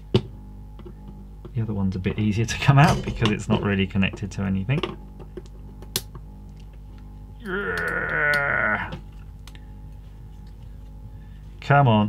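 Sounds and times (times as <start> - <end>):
man's wordless wavering vocal: 7.4 - 9.0.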